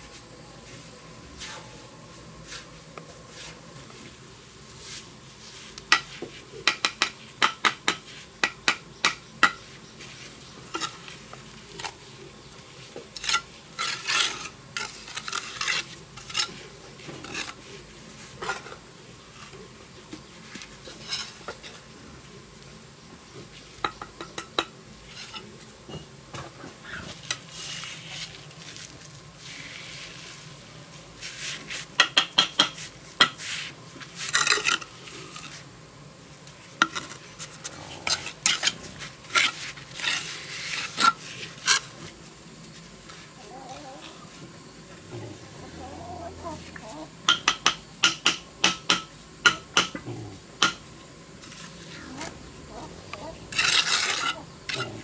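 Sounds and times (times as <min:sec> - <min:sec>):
trowel scraping wet mortar: 0:13.2 - 0:17.6, 0:36.9 - 0:42.0, 0:53.1 - 0:55.0.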